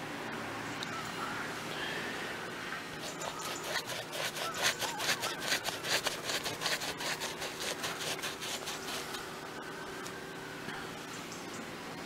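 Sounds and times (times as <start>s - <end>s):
paintbrush scrubbing roofing felt: 3.0s - 9.2s.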